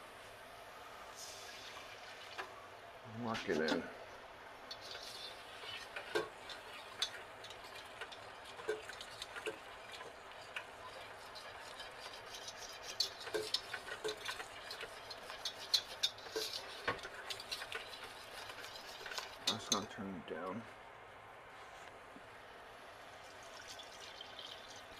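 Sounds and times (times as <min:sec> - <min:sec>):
wire whisk clinking in saucepan: 0:06.0 - 0:19.9.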